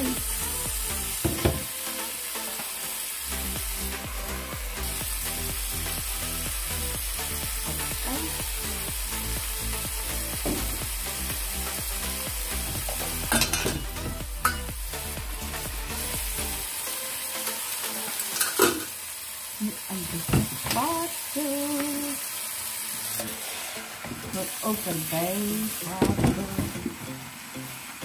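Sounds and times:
pot knocking against sink: 1.2 - 1.7, 13.3 - 13.9.

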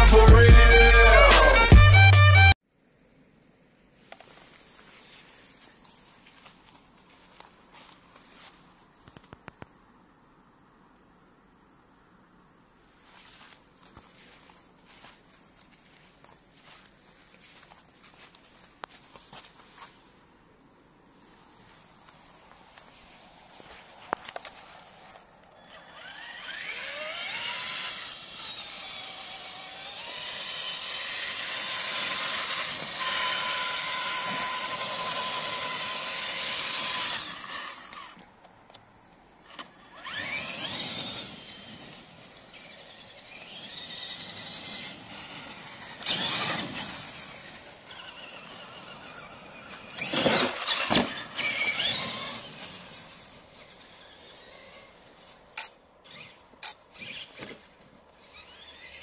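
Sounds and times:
rc truck electric motor whining: 25.6 - 38.2, 39.4 - 59.0.

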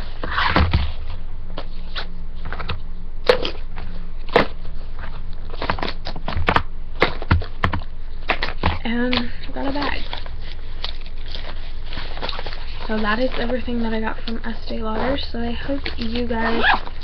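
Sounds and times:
steady low hum: 0.0 - 17.0
packaging rustling and clicking: 3.8 - 17.0.

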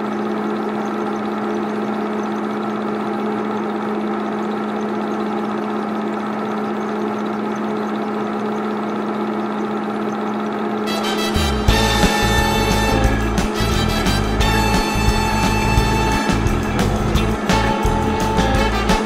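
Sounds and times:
film projector hum: 0.0 - 19.0
fast regular ticking: 11.2 - 19.0.

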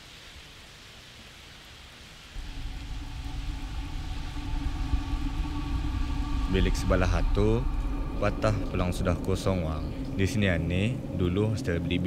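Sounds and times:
soft hiss: 0.0 - 12.0
low motor hum: 2.4 - 12.0.

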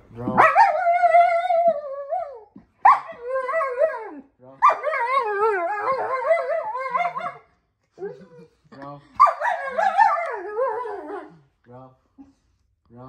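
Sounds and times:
dog howling and whining: 0.3 - 8.3, 9.2 - 11.4.

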